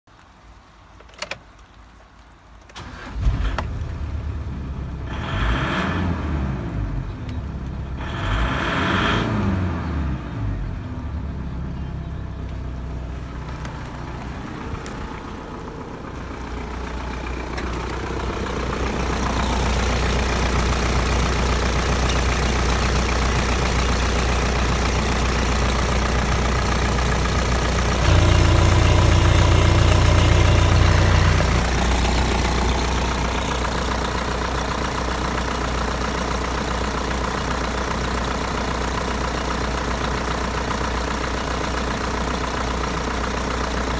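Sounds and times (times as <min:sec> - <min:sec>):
diesel engine starting and revving: 0:02.7 - 0:43.9
diesel engine idling: 0:09.6 - 0:43.9.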